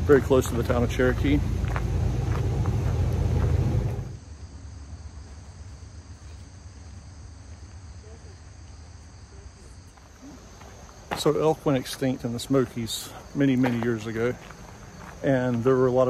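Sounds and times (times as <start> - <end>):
passing road traffic rumble: 0.0 - 4.2
insects chirping: 0.0 - 16.0.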